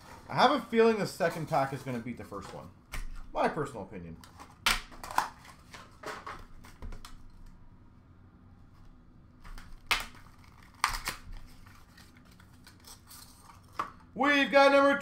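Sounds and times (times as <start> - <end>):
wrapper crackling: 9.8 - 13.2
paper wrapper rustling: 9.8 - 13.8.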